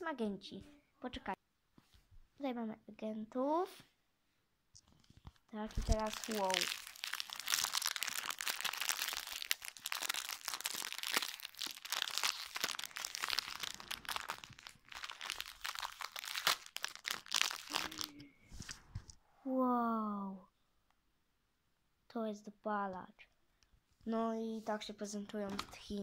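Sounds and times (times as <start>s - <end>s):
plastic packaging crinkling: 4.9s - 18.8s.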